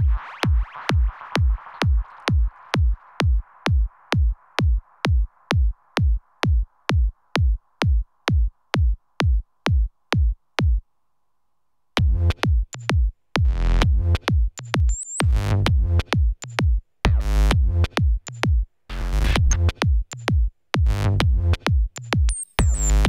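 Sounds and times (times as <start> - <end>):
drum machine kick beat: 0.0 - 10.8, 12.0 - 23.0.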